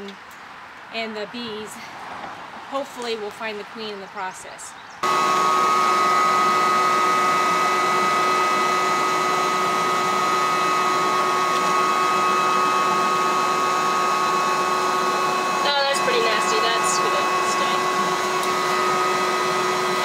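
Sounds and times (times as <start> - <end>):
vacuum motor whine: 5.0 - 20.0.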